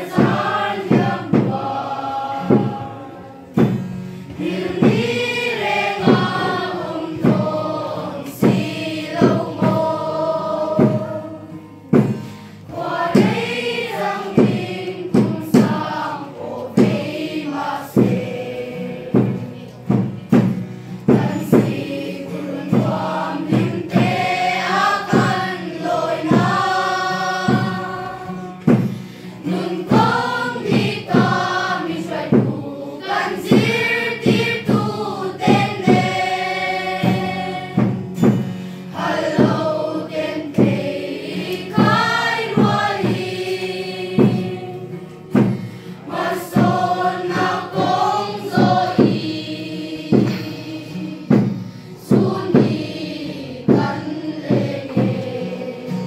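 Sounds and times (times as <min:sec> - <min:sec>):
children's choir singing: 0:00.0 - 0:56.0
strummed acoustic guitar: 0:00.0 - 0:56.0.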